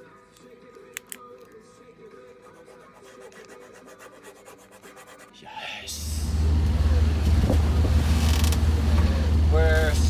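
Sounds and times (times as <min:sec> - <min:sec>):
boat engine: 0:06.0 - 0:10.0.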